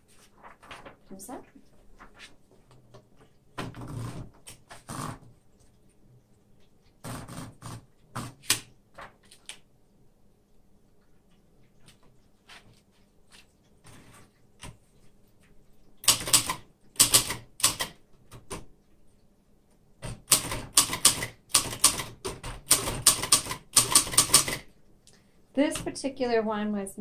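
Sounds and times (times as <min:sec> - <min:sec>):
typewriter key strikes: 0:16.0 - 0:18.0, 0:20.0 - 0:24.7.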